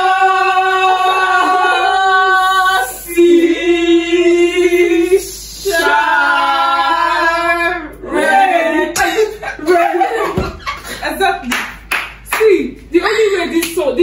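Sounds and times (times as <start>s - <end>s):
women singing unaccompanied: 0.0s - 9.0s.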